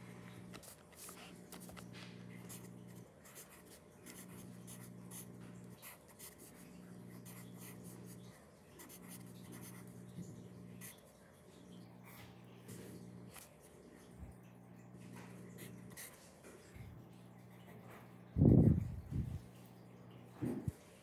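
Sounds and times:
pencil scratching on paper: 2.4s - 8.2s, 8.8s - 9.9s, 15.6s - 16.2s.

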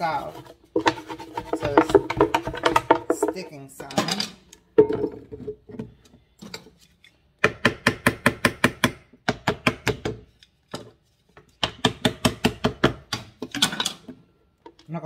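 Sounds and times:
plastic blender jar knocking: 0.8s - 3.5s.

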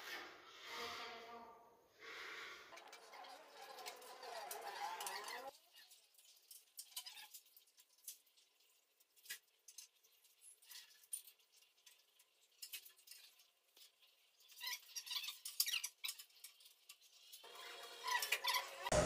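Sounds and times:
hands scratching tape and tiles: 2.8s - 8.4s.

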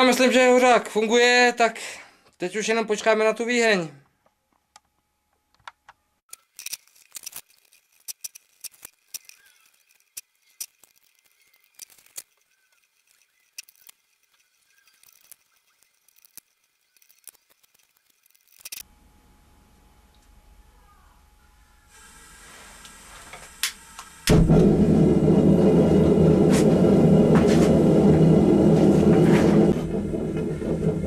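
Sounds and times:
steady low hum: 23.1s - 31.0s.

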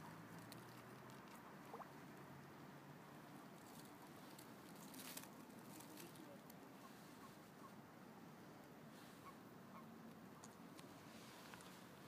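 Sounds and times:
soft ticks and rustles: 0.0s - 2.2s, 3.2s - 7.7s, 10.0s - 12.0s.

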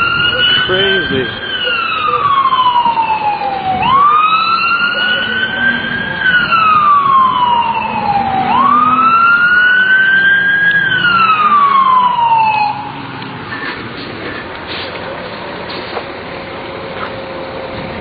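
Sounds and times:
emergency siren wailing: 0.0s - 13.8s.

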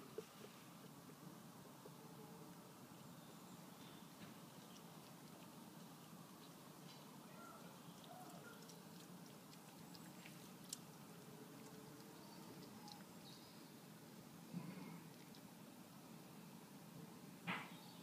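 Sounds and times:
small ticks: 4.2s - 7.1s, 7.9s - 13.1s, 15.1s - 15.5s.

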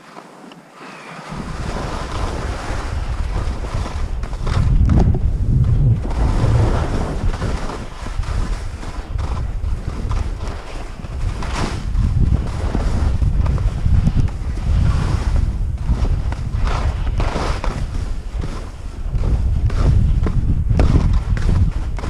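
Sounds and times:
skis hissing through snow: 0.0s - 4.6s, 6.0s - 20.0s
wind buffeting microphone: 1.2s - 22.0s.

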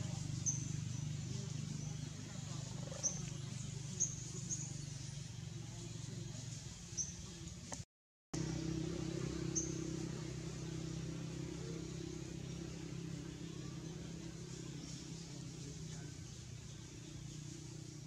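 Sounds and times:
motor droning: 8.4s - 18.0s.

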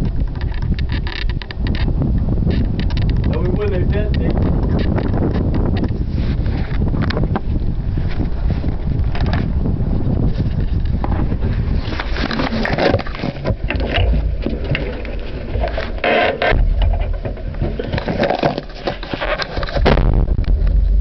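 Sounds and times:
rattles and scrapes: 0.0s - 21.0s
diesel engine low rumble: 16.4s - 18.8s, 19.8s - 21.0s
loud explosion blast: 19.8s - 21.0s.

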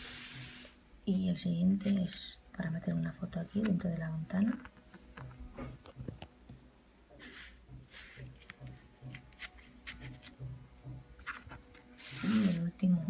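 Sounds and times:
card clicking and tapping: 7.9s - 11.9s.

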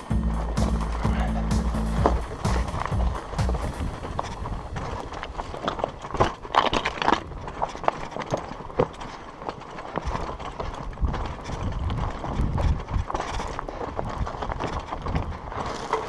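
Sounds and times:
low rumble: 0.0s - 5.9s
bike tyres clicking on rock: 0.0s - 16.0s.

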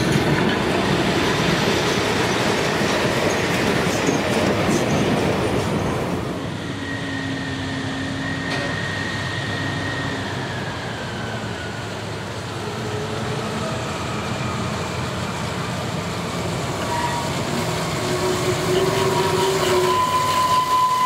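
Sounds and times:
train wheels clattering on rails: 0.0s - 6.4s, 8.2s - 9.2s, 16.6s - 21.0s
high wheel squeal: 6.6s - 11.8s, 16.8s - 21.0s.

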